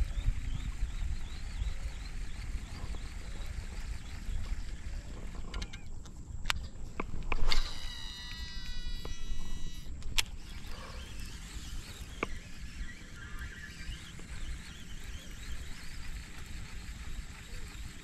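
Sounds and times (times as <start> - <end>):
low wind rumble: 0.0 - 7.7
sharp click: 5.5 - 15.2
fishing reel brake whining: 7.3 - 18.0.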